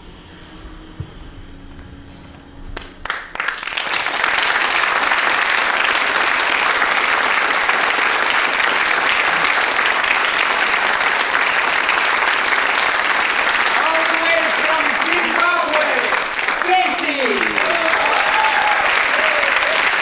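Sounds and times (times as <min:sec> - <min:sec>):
faint low hum: 0:00.0 - 0:05.0
audience applauding: 0:02.7 - 0:20.0.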